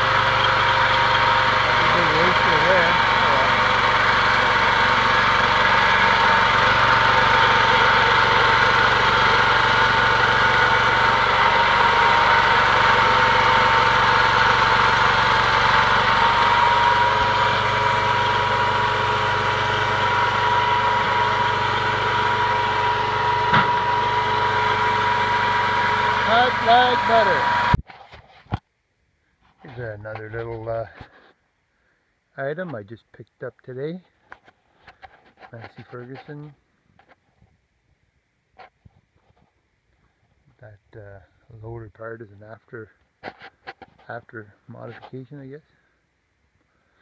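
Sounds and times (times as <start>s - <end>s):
bandsaw high whine: 0.0s - 27.8s
engine drone: 0.0s - 27.8s.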